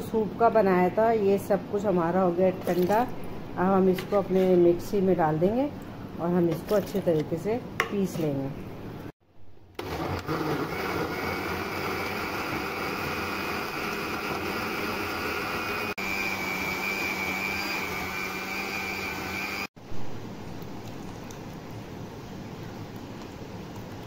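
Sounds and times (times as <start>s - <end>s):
mixer-grinder motor whine: 9.8s - 19.7s.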